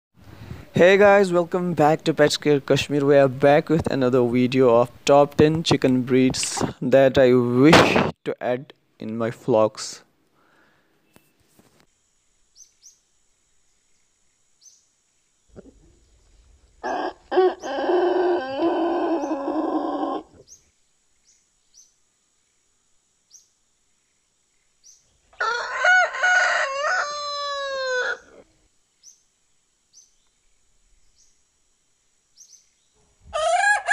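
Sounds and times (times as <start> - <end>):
rooster crowing: 16.8 - 20.4, 25.4 - 28.4, 33.3 - 33.9.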